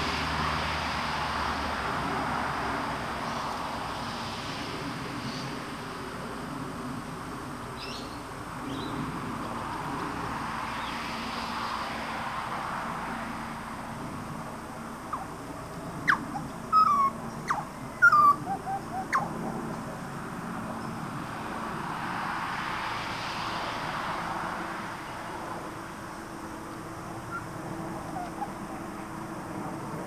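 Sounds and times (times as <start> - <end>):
birds calling: 7.5 - 10.2, 14.4 - 21.2, 26.5 - 30.0.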